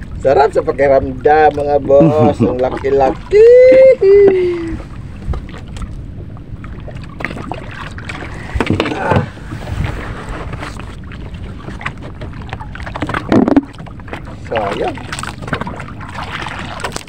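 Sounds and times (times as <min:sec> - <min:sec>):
wind buffeting microphone: 0:00.0 - 0:16.8
water moving around boat: 0:00.0 - 0:17.0.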